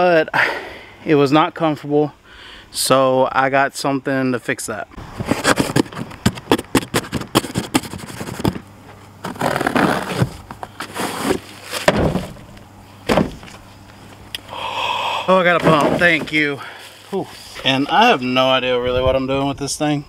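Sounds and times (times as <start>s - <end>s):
cardboard rustling: 5.1s - 13.6s, 15.4s - 16.6s
knife ripping cardboard tape: 5.2s - 8.6s, 9.2s - 12.3s
cardboard tearing: 5.2s - 12.4s.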